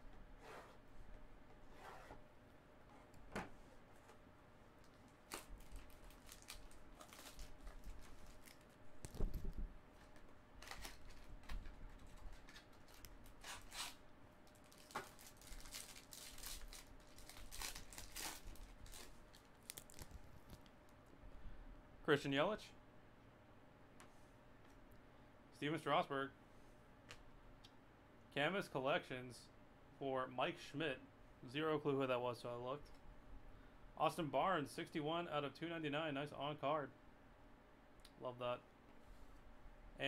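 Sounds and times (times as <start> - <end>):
wrapper crinkling and tearing: 5.1 - 9.2, 10.6 - 20.7.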